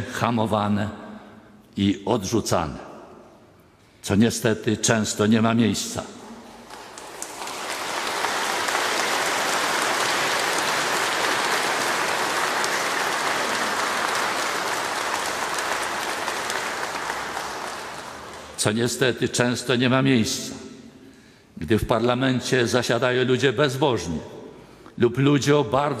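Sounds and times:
crowd applauding: 6.4s - 18.7s.

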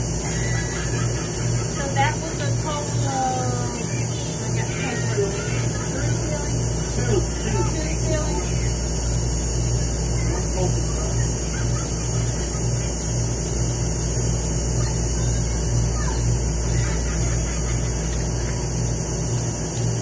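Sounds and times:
pulsing low hum: 0.0s - 20.0s
faint distant voices: 1.8s - 13.6s.

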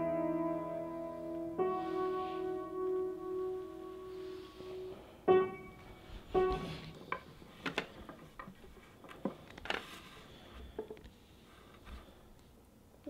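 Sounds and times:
piano notes: 0.0s - 8.1s.

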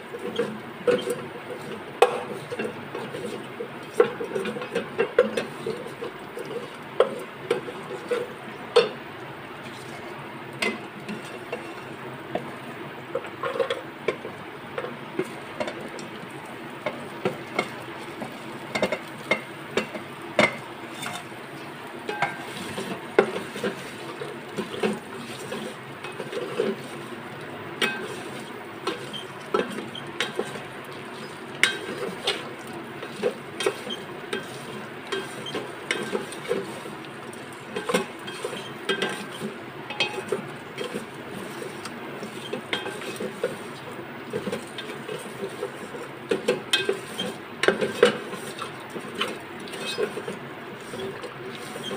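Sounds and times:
food sizzling in oil: 0.1s - 51.9s
wooden spatula scraping metal pot: 0.2s - 8.9s, 16.8s - 21.3s, 27.8s - 36.9s, 37.7s - 51.9s.

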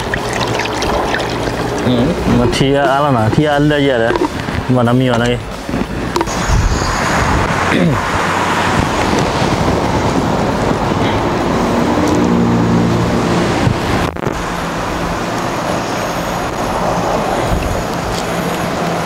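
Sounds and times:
propane burner roaring hiss: 0.0s - 12.2s.

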